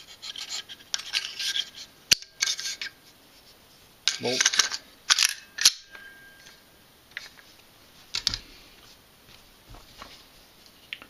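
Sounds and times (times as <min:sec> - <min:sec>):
rifle parts clicking and clinking: 0:00.4 - 0:02.9, 0:04.1 - 0:07.4.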